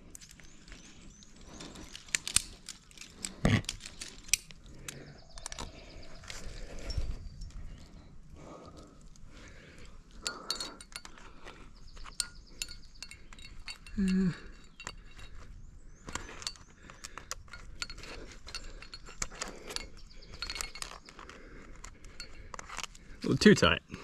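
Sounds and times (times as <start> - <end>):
climbing gear clinking: 0.0 - 24.0.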